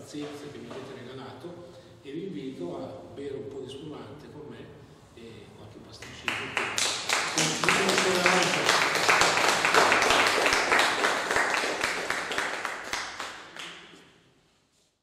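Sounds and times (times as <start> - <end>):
small audience applauding: 6.0 - 14.2.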